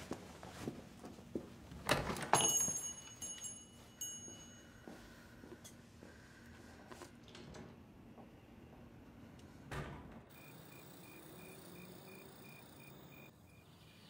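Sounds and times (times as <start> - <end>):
small door bell jingling: 2.2 - 4.9.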